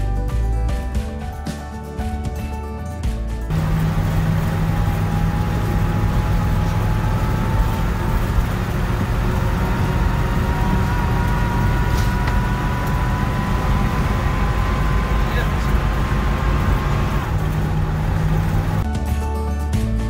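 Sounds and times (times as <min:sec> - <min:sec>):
engine and road drone: 0:03.3 - 0:18.9
thin rising whine: 0:03.5 - 0:18.8.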